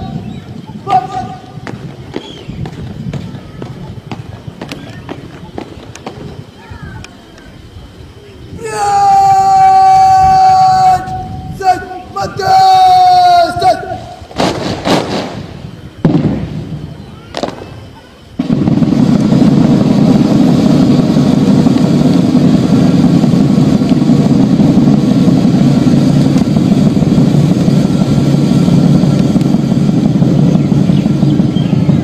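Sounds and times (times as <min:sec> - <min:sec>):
low rumbling noise: 0:00.0 - 0:32.0
sharp cracks: 0:14.3 - 0:17.8, 0:18.4 - 0:31.2.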